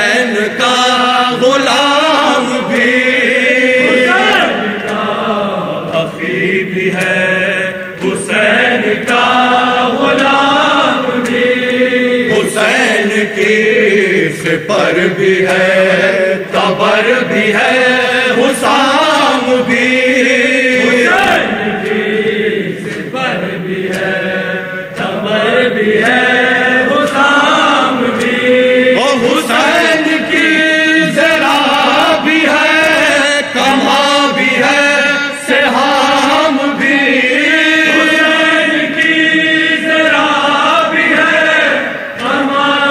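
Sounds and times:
man singing into a microphone: 0.0s - 4.9s, 26.4s - 39.1s
men singing in chorus: 0.0s - 42.9s.

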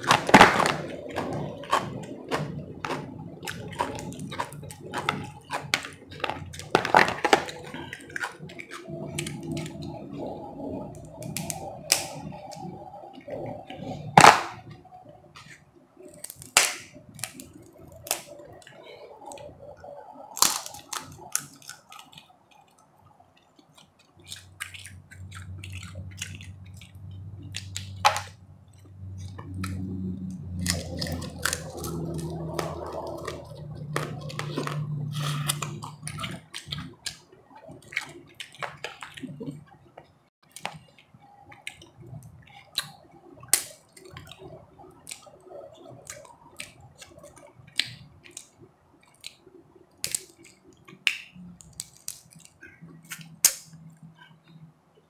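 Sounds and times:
chewing: 0.0s - 14.8s, 15.4s - 54.7s
low steady hum: 0.0s - 55.0s
crab shell cracking by hand: 11.1s - 12.7s, 16.1s - 19.5s, 20.3s - 28.3s, 30.6s - 39.4s, 40.4s - 53.8s.

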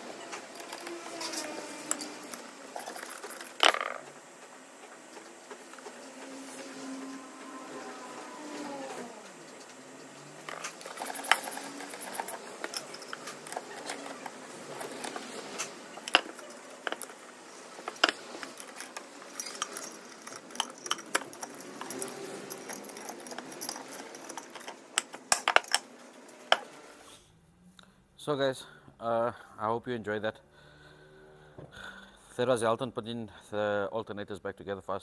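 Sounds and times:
screwdriver clinking on metal housing: 10.5s - 15.2s, 16.0s - 17.2s, 17.8s - 25.9s.

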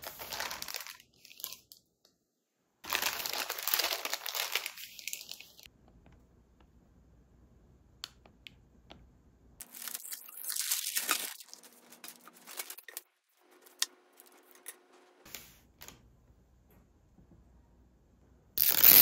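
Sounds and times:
paper bag crinkling: 0.0s - 1.7s, 2.9s - 5.7s, 9.6s - 13.0s, 18.6s - 19.0s.

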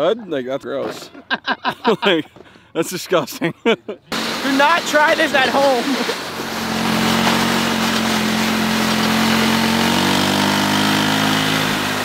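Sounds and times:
three-wheeler engine running: 4.1s - 12.0s.

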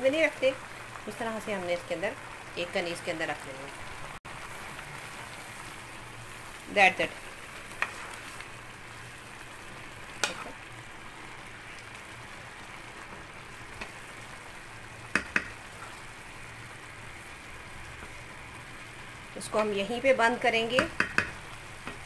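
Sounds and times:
simmering pot hiss: 0.0s - 22.0s
wooden spoon stirring rice: 7.6s - 8.5s
spoon knocking against pot: 15.1s - 15.6s, 20.8s - 21.4s.

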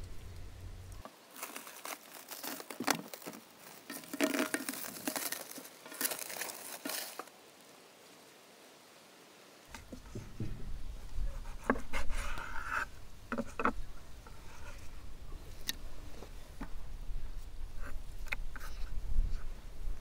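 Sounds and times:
crackles and clicks: 0.0s - 7.4s
crinkling and rustling: 0.0s - 7.4s.

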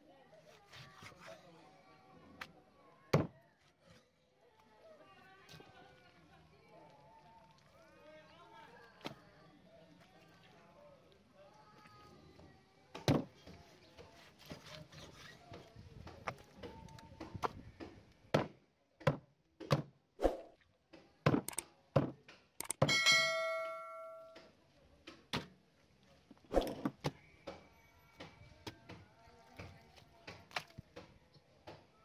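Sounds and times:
ringing metal clang: 22.8s - 24.4s.

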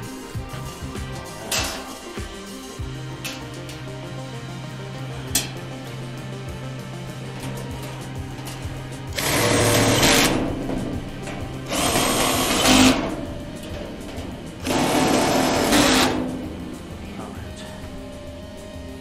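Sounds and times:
power drill whirring: 9.1s - 10.4s, 11.7s - 13.0s, 14.6s - 16.2s.

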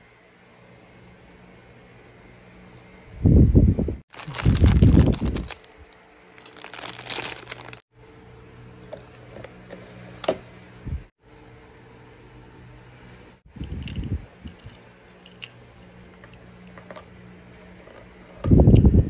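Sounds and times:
plastic packaging crinkling: 4.1s - 7.8s.

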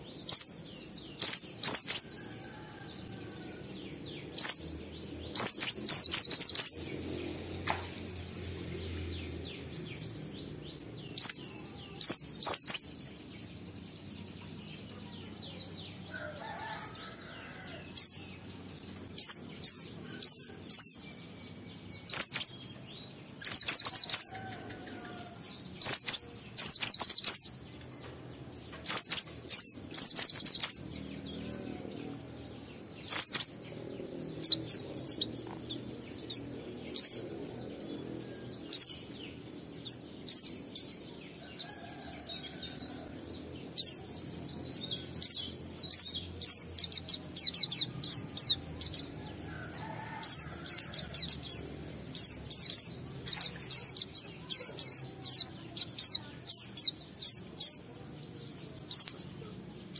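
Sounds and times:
bird chirping high-pitched: 0.0s - 2.4s, 3.9s - 7.2s, 9.3s - 13.1s, 17.9s - 18.4s, 19.0s - 24.4s, 25.4s - 27.6s, 28.8s - 32.2s, 33.0s - 39.1s, 39.7s - 40.9s, 43.6s - 57.9s, 58.8s - 59.2s.

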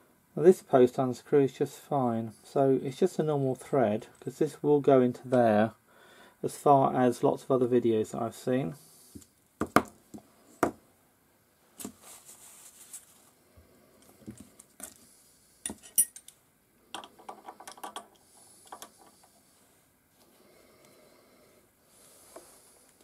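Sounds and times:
hand tools clinking on steel: 15.7s - 16.3s.

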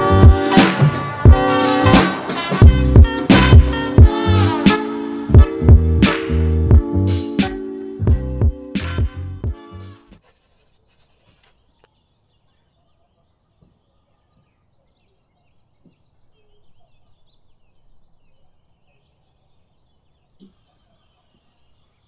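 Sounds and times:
small birds chirping: 10.2s - 22.0s.

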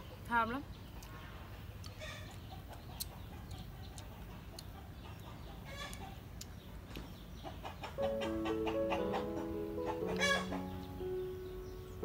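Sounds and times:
chickens clucking: 0.9s - 12.0s
chicken call: 8.0s - 10.7s.

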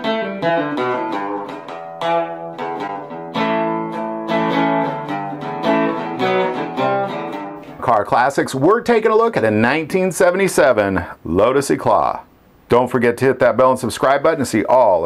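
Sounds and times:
acoustic guitar chords ringing: 0.0s - 8.0s.

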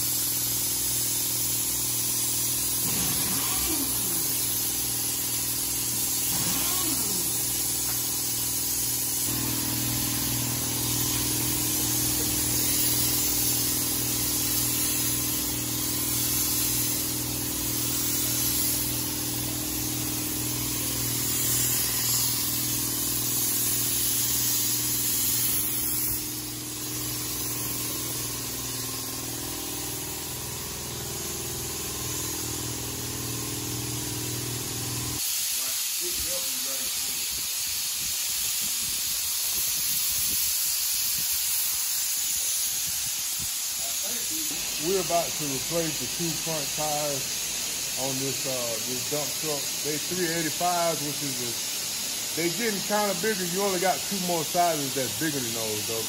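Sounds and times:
constant hiss: 35.5s - 56.0s.

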